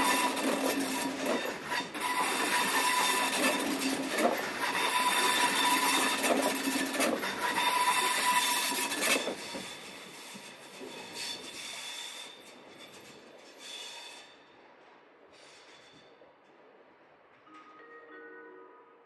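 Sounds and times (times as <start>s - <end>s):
train wheels clattering over rails: 0.0s - 17.4s
electric train running past: 0.0s - 19.0s
faint wheel squeal: 7.5s - 14.4s.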